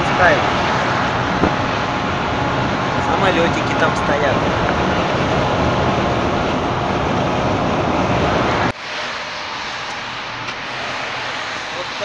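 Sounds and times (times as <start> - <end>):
steady cab rumble: 0.0 - 9.2
road and wind noise in truck cab: 0.0 - 12.0.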